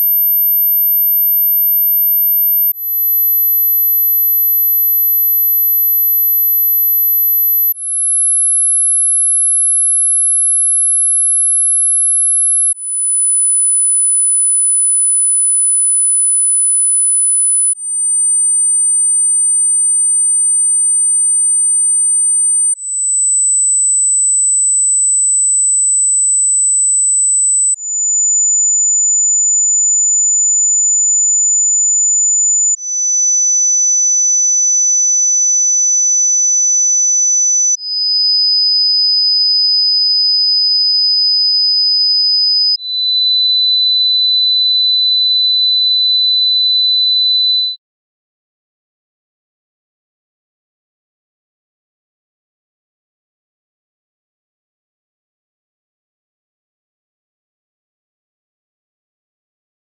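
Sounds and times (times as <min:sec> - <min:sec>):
high sine tones: 0:00.0 - 0:08.2.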